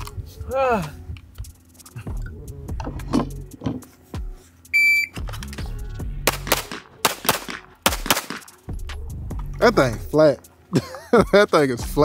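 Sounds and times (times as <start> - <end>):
shot timer beep: 4.8 - 5.2
pistol shots: 6.3 - 8.6.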